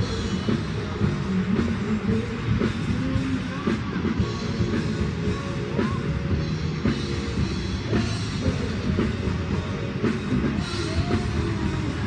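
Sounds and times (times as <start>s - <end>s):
held guitar chords: 0.0s - 12.0s
rock music: 0.0s - 12.0s
steady drum beat: 0.0s - 12.0s.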